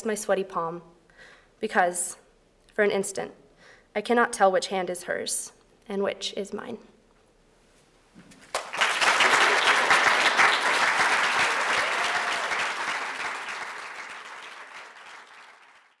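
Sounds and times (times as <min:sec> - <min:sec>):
audience applauding: 0:08.5 - 0:16.0.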